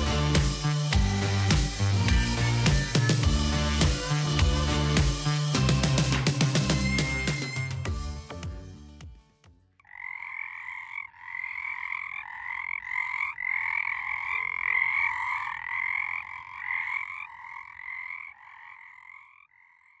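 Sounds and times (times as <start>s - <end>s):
frogs croaking: 9.8s - 20.0s.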